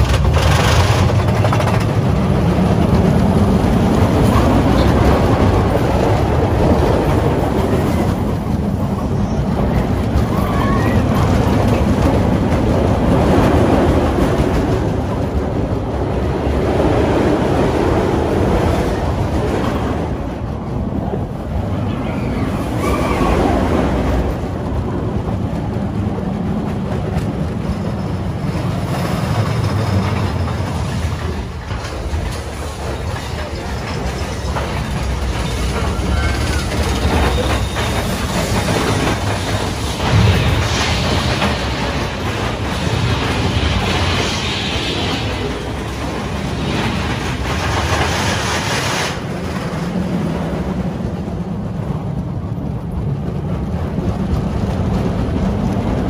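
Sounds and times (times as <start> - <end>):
clattering clicks of wheels: 0.0 - 15.4, 25.2 - 44.0
wind rushing on microphone: 0.0 - 33.5
roller coaster rumbling on track: 0.0 - 56.0.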